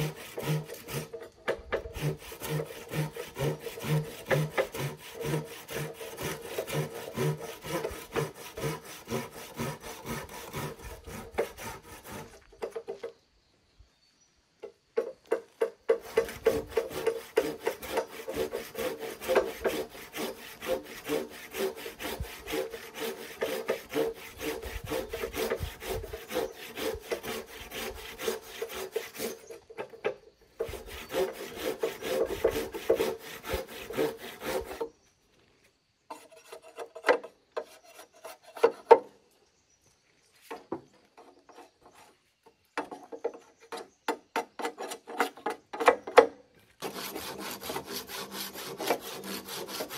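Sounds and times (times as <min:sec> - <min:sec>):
hand rasp scraping wood: 0:00.0 - 0:12.8, 0:15.6 - 0:30.0, 0:30.6 - 0:34.9, 0:36.1 - 0:39.0, 0:46.8 - 0:49.9.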